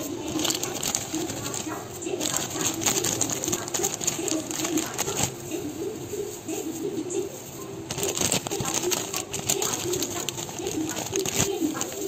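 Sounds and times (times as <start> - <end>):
hamster rustling in paper bedding: 0.0 - 12.0
claws clicking: 0.2 - 5.4, 7.9 - 12.0.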